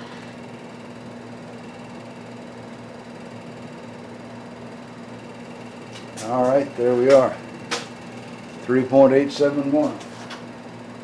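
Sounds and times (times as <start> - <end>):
milling machine motor humming: 0.0 - 11.0.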